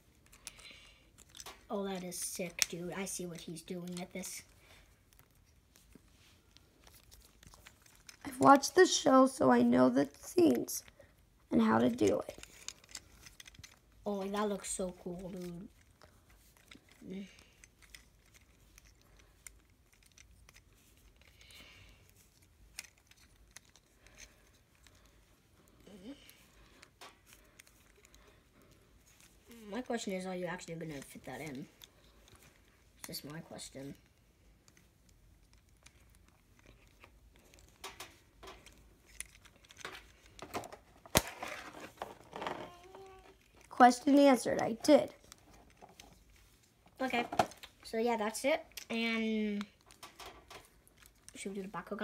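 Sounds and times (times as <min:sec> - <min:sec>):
plastic toy parts clicking: 0:00.2 - 0:04.5, 0:11.9 - 0:25.0, 0:34.6 - 0:46.2.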